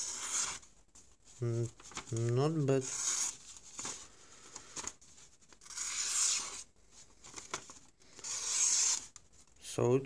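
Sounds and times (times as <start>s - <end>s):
paper rustling: 0.1s - 9.5s
knife slicing paper: 5.6s - 6.6s, 8.2s - 9.1s.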